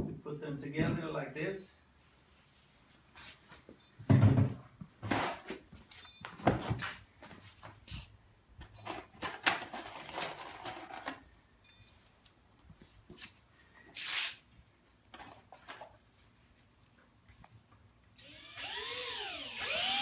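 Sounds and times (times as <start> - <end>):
screws rattling in cardboard box: 8.9 - 11.2.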